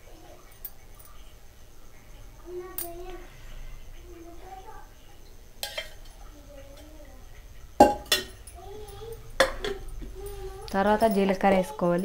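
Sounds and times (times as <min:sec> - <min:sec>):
metal utensils and pots clinking: 0:05.6 - 0:07.0, 0:07.8 - 0:12.0.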